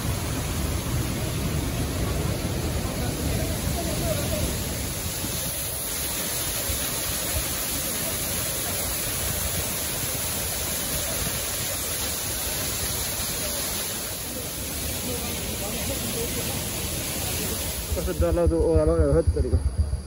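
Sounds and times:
waterfall rushing and splashing: 0.0s - 18.6s.

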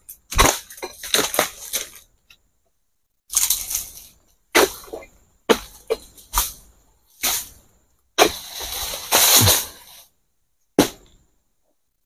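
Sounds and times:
sickle cracking fronds: 3.3s - 4.2s
frond tearing and rustling: 8.2s - 10.0s.

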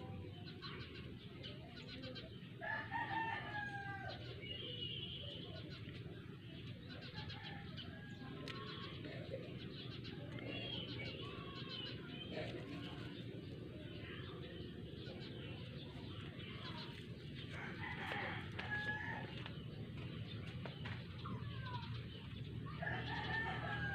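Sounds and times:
rooster crowing: 22.8s - 23.9s.

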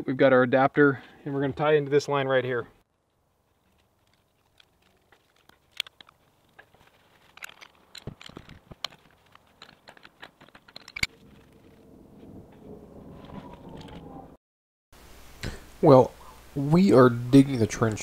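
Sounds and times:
pipe wrenches clicking and clanking: 7.3s - 11.1s.

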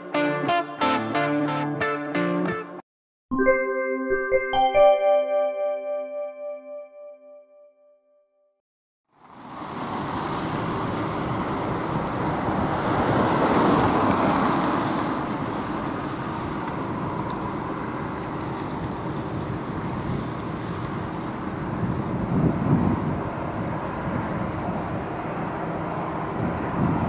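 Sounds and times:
airliner jet engines rumbling: 9.3s - 27.0s.

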